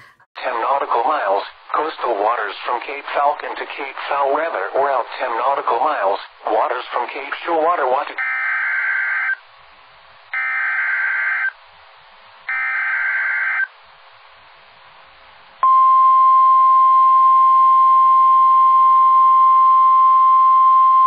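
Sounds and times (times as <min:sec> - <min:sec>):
steady alarm tone: 0:10.4 - 0:11.5, 0:12.5 - 0:13.7.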